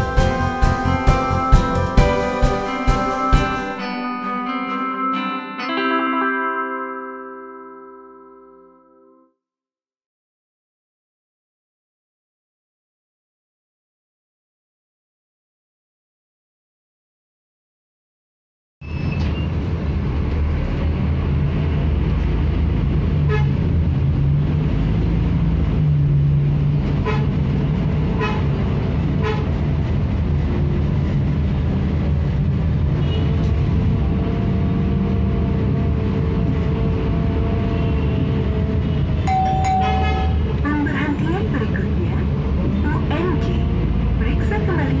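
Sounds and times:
bus diesel engine: 0.0 - 5.2, 18.9 - 45.0
horn toots: 27.0 - 27.5, 28.1 - 28.6, 29.2 - 29.6, 36.4 - 40.6.

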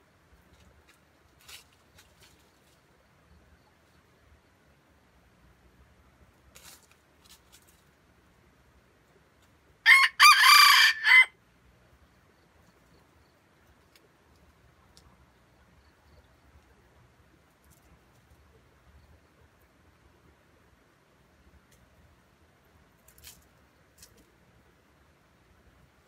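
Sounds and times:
rooster crowing: 9.9 - 11.4.

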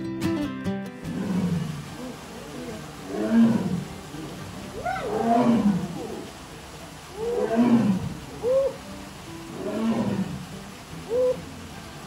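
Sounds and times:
tiger roaring: 1.0 - 6.3, 7.1 - 8.8, 9.5 - 10.5.

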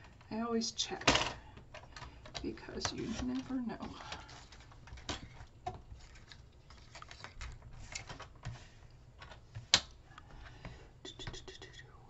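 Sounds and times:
paper rustling: 2.8 - 9.7.

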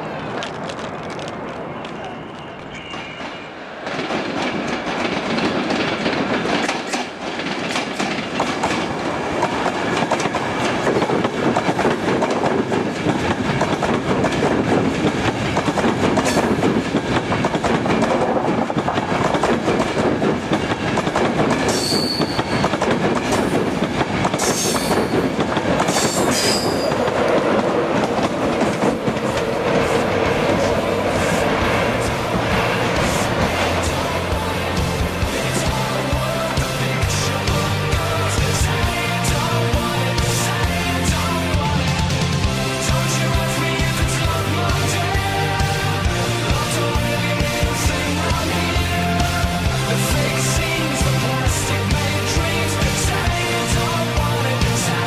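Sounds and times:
train wheels rumbling on rail: 0.0 - 55.0
high-pitched wheel squeals: 21.7 - 22.7, 26.0 - 27.0.

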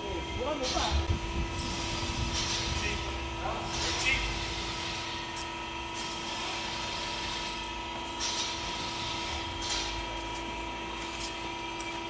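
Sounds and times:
machinery humming: 0.0 - 12.0.

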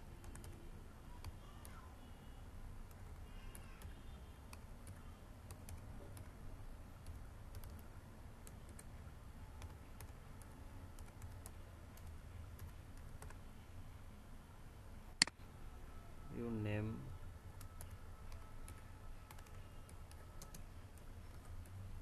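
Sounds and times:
computer keyboard typing: 0.2 - 0.6, 2.8 - 6.4, 7.0 - 8.9, 9.6 - 13.4, 17.6 - 21.8.

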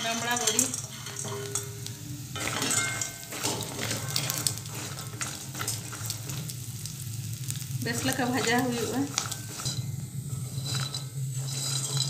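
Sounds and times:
dumplings sizzling in oil: 0.0 - 12.0
wooden spatula scraping pan: 2.4 - 6.5, 7.5 - 12.0.

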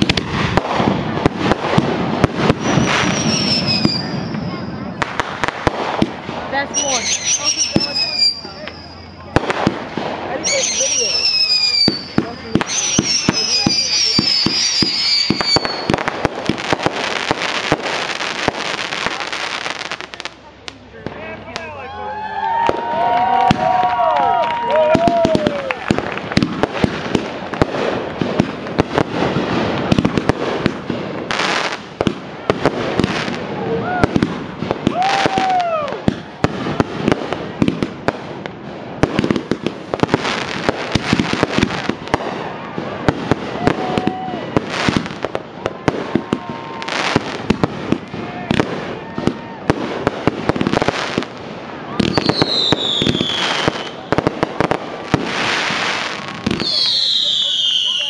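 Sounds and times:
fireworks whistling: 0.0 - 20.4, 22.5 - 58.0
fireworks crackling hiss: 0.0 - 21.7, 24.8 - 58.0
fireworks pops and bangs: 0.0 - 21.8, 22.4 - 58.0
falling firework whistle: 2.2 - 5.0, 6.7 - 9.4, 10.4 - 16.1, 22.3 - 26.5, 34.8 - 36.9, 51.9 - 54.3, 55.1 - 58.0.

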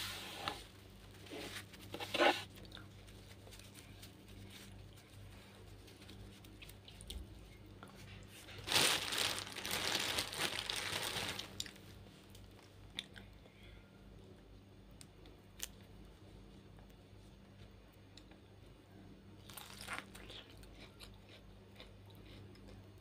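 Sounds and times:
plastic wrapping crinkling: 8.4 - 11.8, 19.5 - 20.1.

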